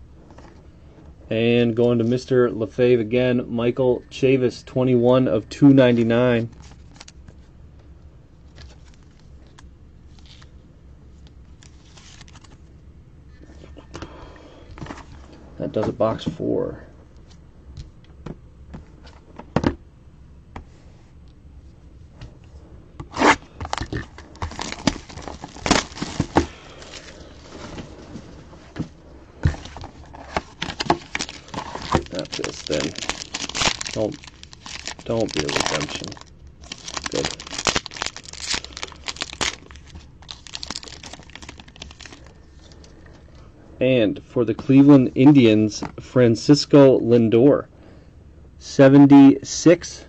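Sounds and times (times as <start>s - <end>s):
low background hum: 0.0s - 50.0s
wrapping crackling and tearing: 6.5s - 7.2s, 11.6s - 12.6s, 23.1s - 27.7s, 29.6s - 42.8s
cards scraping: 29.4s - 42.2s.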